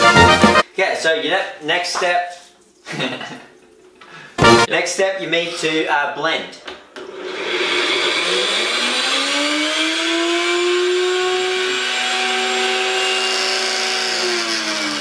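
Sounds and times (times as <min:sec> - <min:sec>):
blender motor whining: 0:07.0 - 0:15.0.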